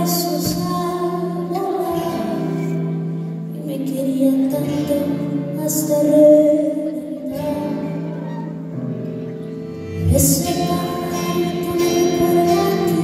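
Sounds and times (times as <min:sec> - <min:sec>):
live band slow song: 0:00.0 - 0:13.0.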